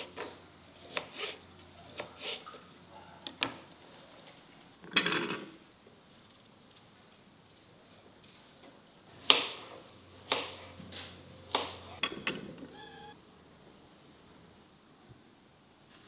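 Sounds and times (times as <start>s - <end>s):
knife chopping on wooden board: 11.5s - 11.9s.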